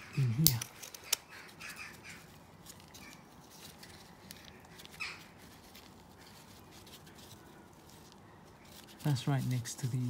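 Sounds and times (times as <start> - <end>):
faint rustling: 0.5 - 10.0.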